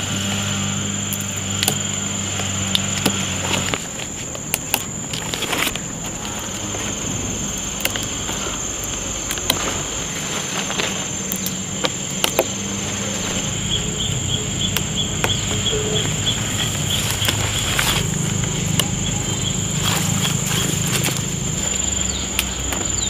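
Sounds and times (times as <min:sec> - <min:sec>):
insects high-pitched drone: 0:00.0 - 0:23.0
rhythmic insect chirping: 0:00.0 - 0:23.0
sharp clicks: 0:07.6 - 0:23.0.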